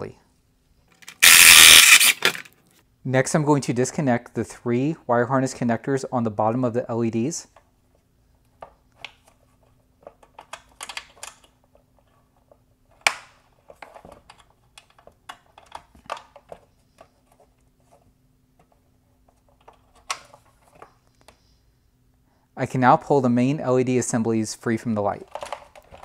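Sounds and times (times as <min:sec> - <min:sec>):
plastic connector clicks and rattles: 0:10.0 - 0:11.6.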